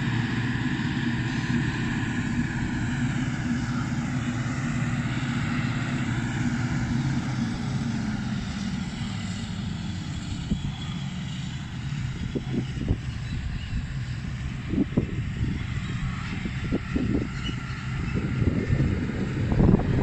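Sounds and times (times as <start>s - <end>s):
diesel engines droning: 0.0s - 20.0s.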